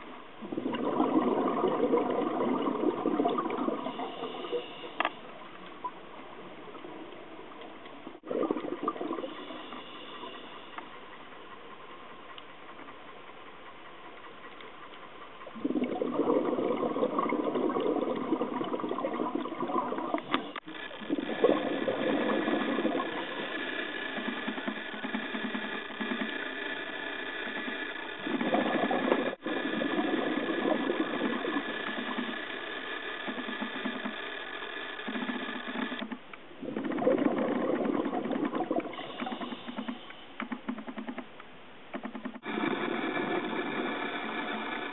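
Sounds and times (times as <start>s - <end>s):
underwater bubbling and rushing: 0.0s - 10.7s, 15.4s - 34.2s, 35.0s - 40.2s
faint steady hum: 0.0s - 44.9s.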